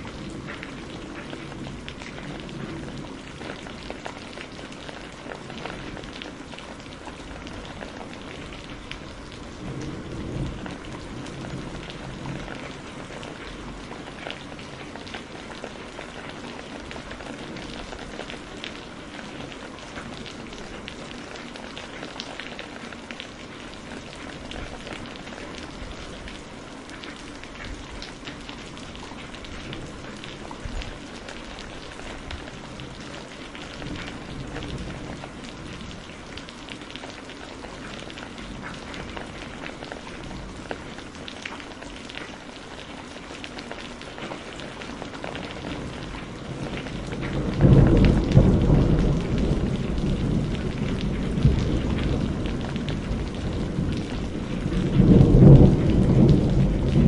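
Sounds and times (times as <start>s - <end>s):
rain on hard surface: 0.0s - 57.0s
thunder rumble: 45.4s - 57.0s.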